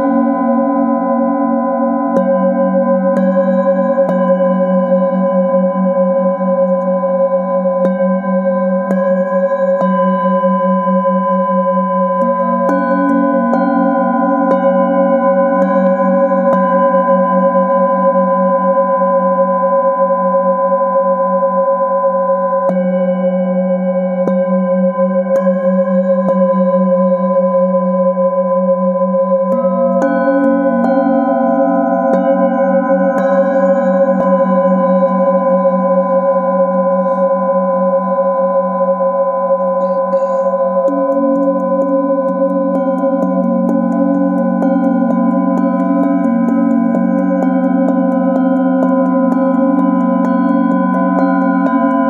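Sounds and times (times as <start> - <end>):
singing bowls ringing: 0.0 - 52.0
wooden mallet striking bowl: 39.7 - 52.0.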